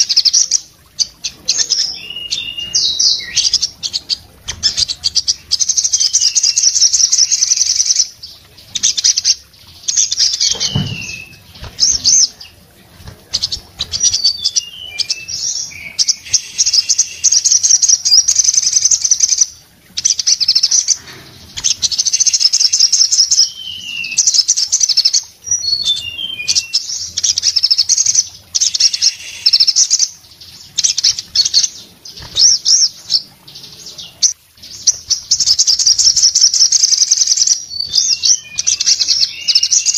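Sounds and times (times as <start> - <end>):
bird singing rapid trills: 0.0 - 39.9
bird thump on perch: 10.4 - 11.8
wing flutters: 10.4 - 14.3, 31.1 - 32.7.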